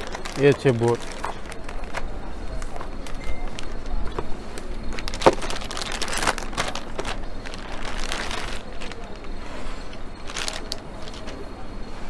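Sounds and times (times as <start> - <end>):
packaging rustling: 0.0 - 11.4.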